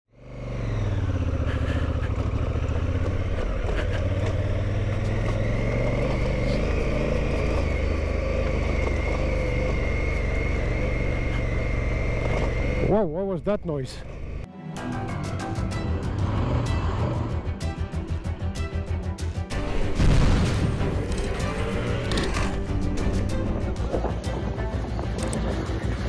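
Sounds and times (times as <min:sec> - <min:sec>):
motorcycle engine running: 0:00.1 - 0:14.5, 0:20.7 - 0:26.0
road and wind noise: 0:00.1 - 0:14.5, 0:20.7 - 0:26.0.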